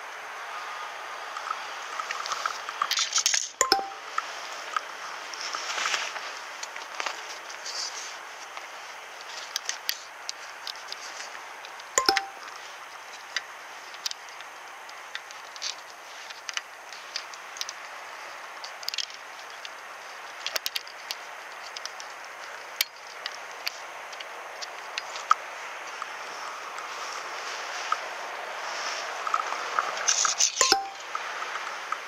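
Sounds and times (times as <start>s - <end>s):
metallic clink: 30.6s - 31.0s.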